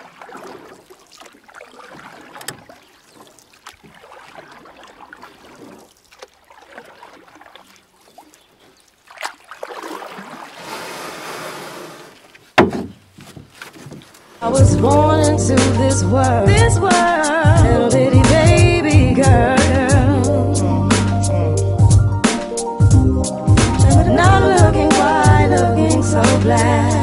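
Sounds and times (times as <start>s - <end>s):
rushing water: 0.0s - 12.5s
water splashing and lapping: 0.0s - 18.6s
sharp knock: 12.6s - 13.0s.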